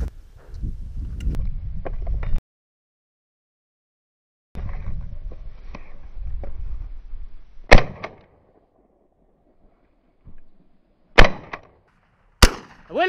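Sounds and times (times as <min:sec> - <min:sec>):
wind buffeting microphone: 0:00.0 - 0:02.4
shotgun shots: 0:07.7 - 0:08.2, 0:11.2 - 0:11.6, 0:12.4 - 0:13.0.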